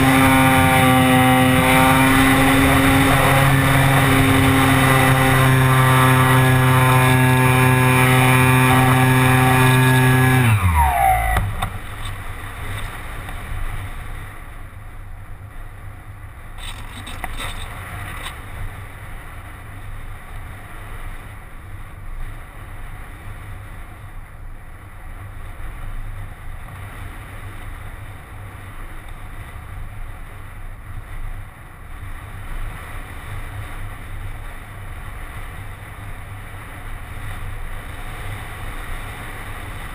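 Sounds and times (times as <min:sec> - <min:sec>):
electric motor and propeller whine: 0:00.0 - 0:14.3.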